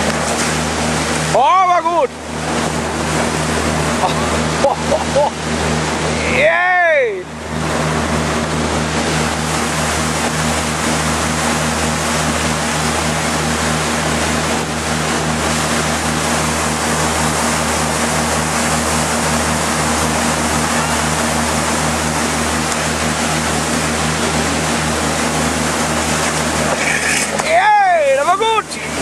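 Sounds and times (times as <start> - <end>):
motorboat engine drone: 0.0 - 29.0
water rushing from hull: 0.0 - 29.0.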